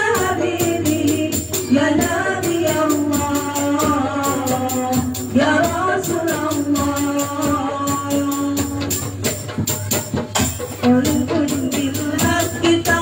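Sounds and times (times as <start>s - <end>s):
girls singing into microphones: 0.0s - 9.2s, 10.8s - 13.0s
frame drums beating: 0.0s - 13.0s
jingling percussion: 0.0s - 13.0s.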